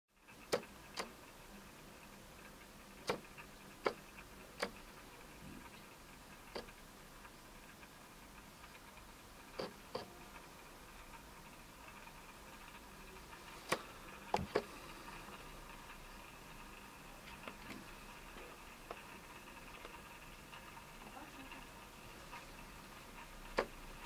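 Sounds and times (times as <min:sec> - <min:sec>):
faint steady hum: 0:00.2 - 0:24.0
sharp clicks: 0:00.3 - 0:01.2, 0:03.0 - 0:04.8, 0:09.5 - 0:10.1.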